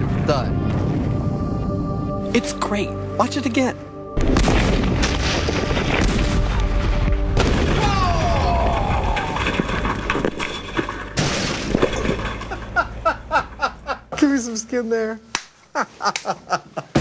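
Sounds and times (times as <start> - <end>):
low rumble: 0.0 - 12.2
tank exploding with deep thud: 4.2 - 8.1
sharp bangs: 4.2 - 13.0
crashing debris: 4.2 - 13.6.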